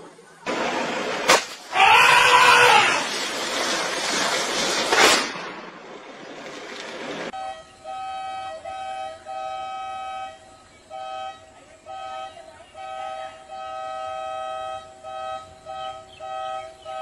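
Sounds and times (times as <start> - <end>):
sharp crack: 0.5 - 7.3
vehicle horn blasts: 7.4 - 17.0.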